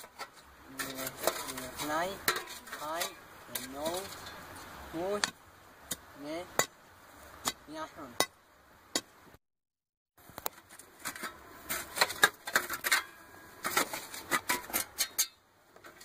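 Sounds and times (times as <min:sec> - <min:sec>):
shovel scraping stony soil: 0:00.0 - 0:05.3, 0:10.4 - 0:16.0.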